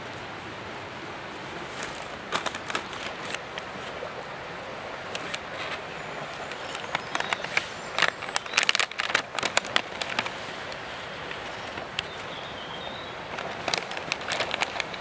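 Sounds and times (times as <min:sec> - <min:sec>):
steady background hiss: 0:00.0 - 0:15.0
food wrapper crinkling: 0:06.8 - 0:10.3, 0:13.4 - 0:15.0.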